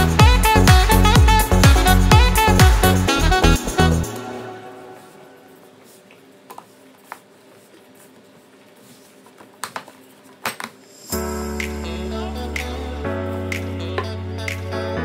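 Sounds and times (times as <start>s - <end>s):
background music: 0.0s - 5.5s, 11.0s - 15.0s.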